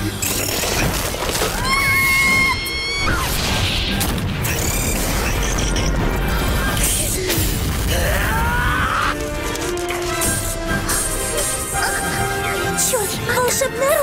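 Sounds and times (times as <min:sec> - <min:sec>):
action music: 0:02.7 - 0:14.0
crashes and blasts: 0:03.0 - 0:11.8.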